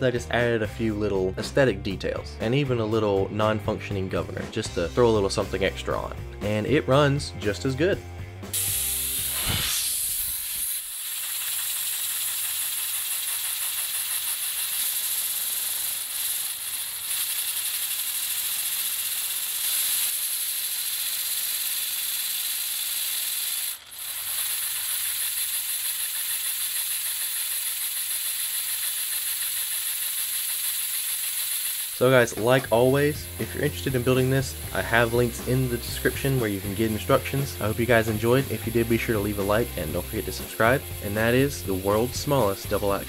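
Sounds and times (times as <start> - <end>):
compressed air hissing: 8.4 - 43.0
fast exhaust pulse chatter: 32.0 - 43.0.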